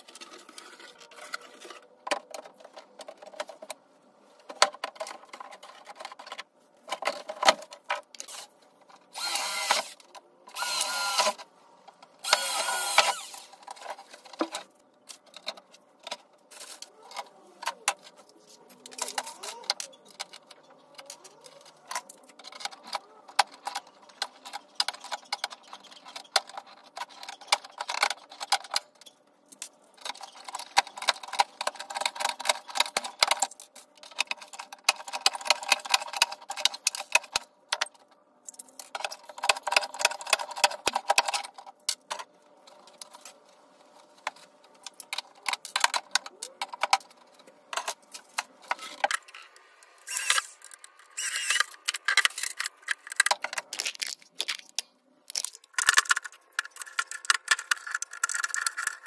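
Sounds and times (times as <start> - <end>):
power drill running: 9.2 - 10.0, 10.6 - 11.4, 12.2 - 13.5, 50.1 - 50.5, 51.2 - 51.6
tools clicking and tapping: 44.2 - 59.0.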